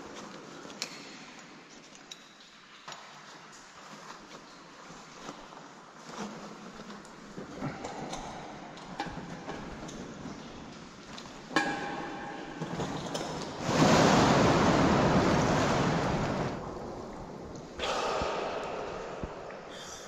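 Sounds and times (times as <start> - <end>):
water churning: 13.5 - 19.8
big splash into water: 13.6 - 16.6.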